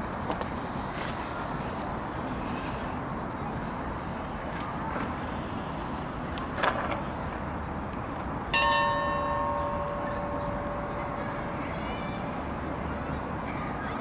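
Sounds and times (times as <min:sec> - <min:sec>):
steady background noise: 0:00.0 - 0:14.0
bell ringing: 0:08.6 - 0:12.5.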